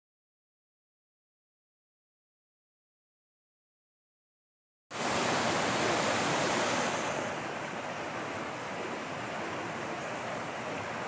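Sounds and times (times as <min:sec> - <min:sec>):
stream rushing over rocks: 0:04.9 - 0:11.0.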